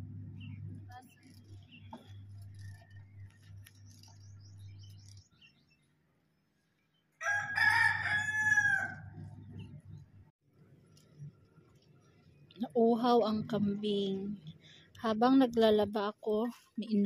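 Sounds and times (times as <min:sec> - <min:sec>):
low steady hum: 0:00.0 - 0:05.2, 0:08.6 - 0:17.0
rooster crowing: 0:07.2 - 0:09.2.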